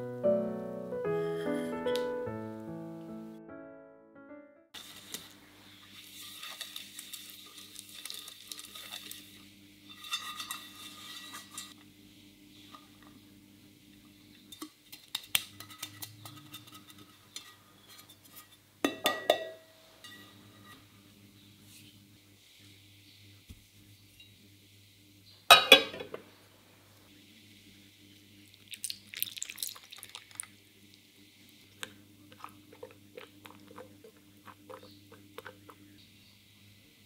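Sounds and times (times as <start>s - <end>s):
flour rustling in pans: 4.8s - 11.8s
metal pan knocked and tapped: 18.9s - 19.6s.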